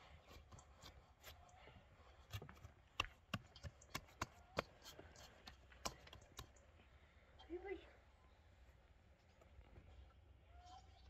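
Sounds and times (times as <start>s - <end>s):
hands kneading dough: 0.0s - 6.6s.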